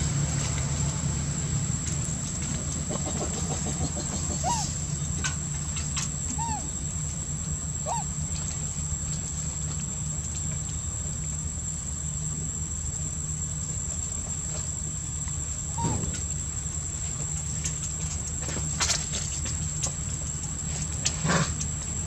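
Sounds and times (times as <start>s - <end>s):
short chirping calls: 4.2s - 4.8s, 6.3s - 6.8s, 7.8s - 8.1s.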